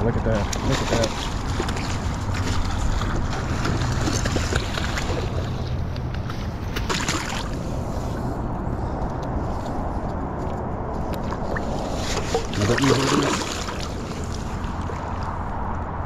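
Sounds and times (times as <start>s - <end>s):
fish thrashing and splashing water: 0.2s - 8.2s, 11.2s - 15.5s
wind rumble on microphone: 7.4s - 16.0s.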